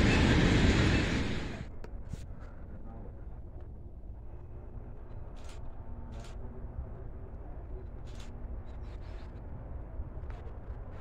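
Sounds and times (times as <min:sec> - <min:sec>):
distant locomotive rumble: 0:00.0 - 0:02.0
faint engine hum: 0:00.0 - 0:11.0.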